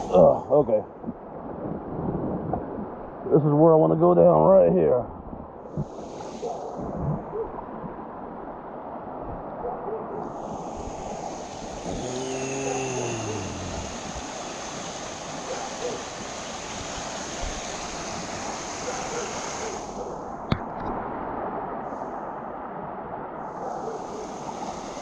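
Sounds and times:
creek water rushing and splashing: 0.0 - 0.4, 10.0 - 25.0
low voice sliding down: 0.0 - 0.8, 10.2 - 14.6.

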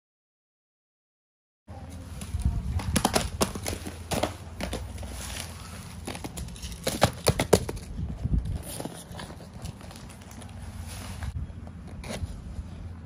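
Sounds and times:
cardboard boxes tapping and knocking: 2.2 - 10.5
paper crinkling: 8.5 - 12.3.

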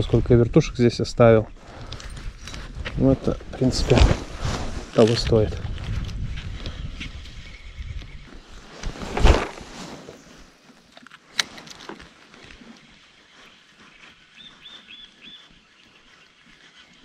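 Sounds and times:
clothing rustle: 1.6 - 6.5, 8.3 - 12.7
bird chirps: 6.3 - 8.4, 12.6 - 17.0.

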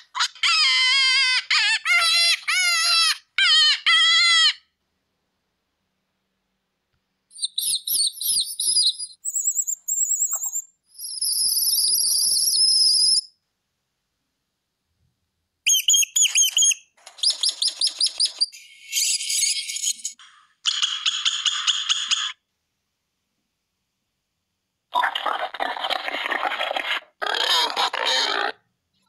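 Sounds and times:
rapid rodent squeaks: 7.3 - 13.3, 15.7 - 22.4
recorded bird chirping and squealing: 7.3 - 13.4, 15.7 - 22.4.

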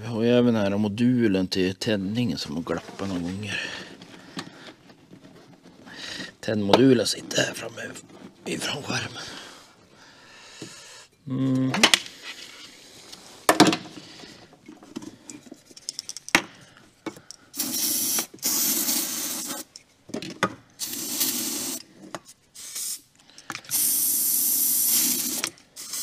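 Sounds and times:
handling clicks and knocks: 2.8 - 8.6, 13.5 - 17.4, 19.7 - 20.6
aerosol can spraying: 17.6 - 19.7, 20.8 - 21.8, 22.6 - 23.1, 23.7 - 26.0.

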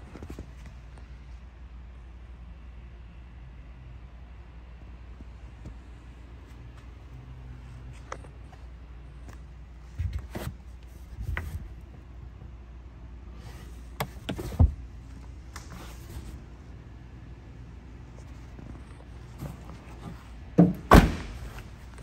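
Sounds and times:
steady low hum: 0.0 - 22.0
knocks clicks and rustles: 13.9 - 16.6, 18.0 - 22.0
thump: 20.6 - 21.6.

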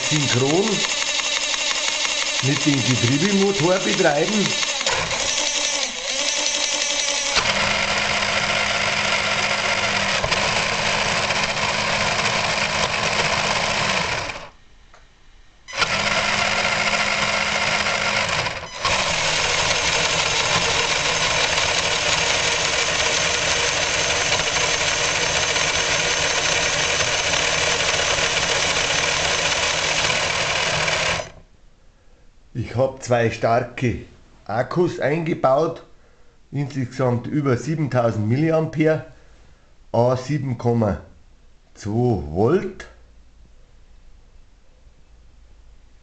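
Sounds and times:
electric motor whirring: 0.0 - 14.6, 15.7 - 31.4.

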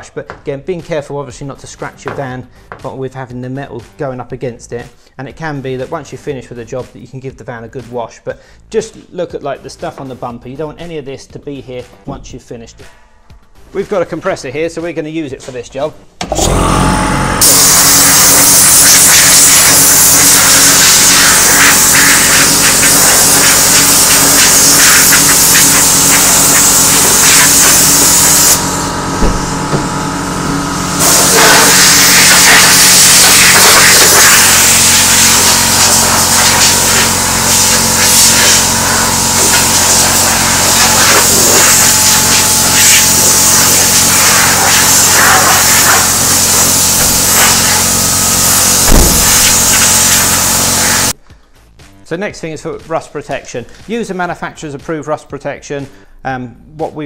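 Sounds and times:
compressed air hissing from blow gun: 17.4 - 29.5, 31.0 - 51.2
steady low hum: 28.1 - 31.7.

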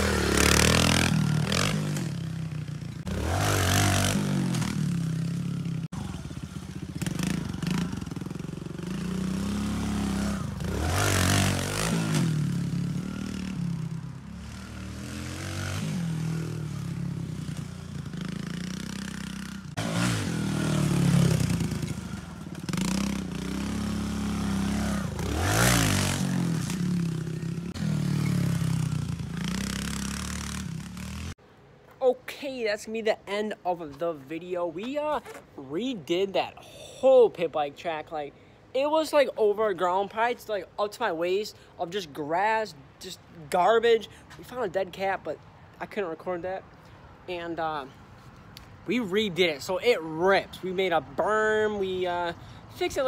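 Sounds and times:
pit bike engine revving: 0.0 - 31.4.

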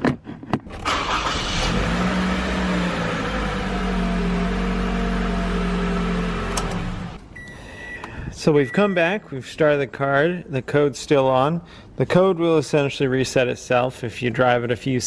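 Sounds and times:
car engine cranking and idling: 0.7 - 8.0.

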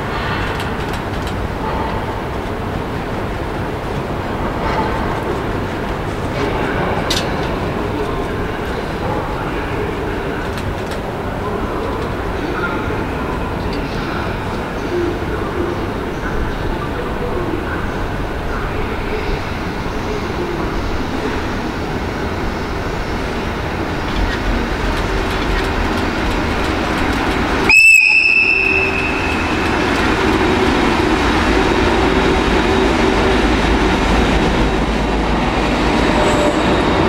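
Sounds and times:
electric locomotive rolling past: 0.0 - 37.0
high-pitched train whistle: 27.7 - 30.0.

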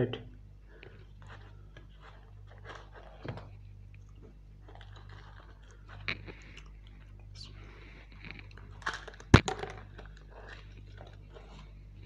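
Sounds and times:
low steady hum: 0.0 - 12.0
fried bread crackling: 4.3 - 12.0.

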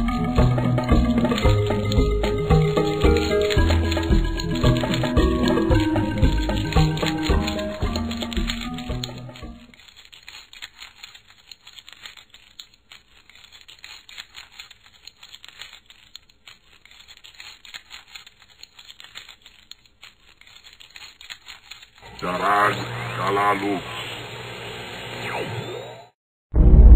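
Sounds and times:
music: 0.0 - 9.7
faint irregular crackling: 0.1 - 23.6.

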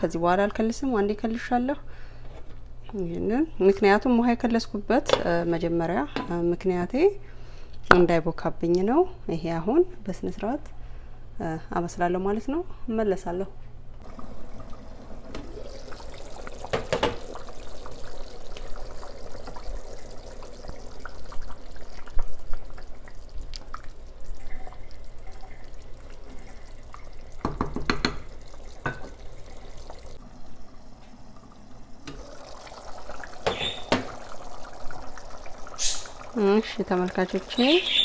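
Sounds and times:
stew bubbling: 14.0 - 38.0
knocks against pot: 27.4 - 28.2.

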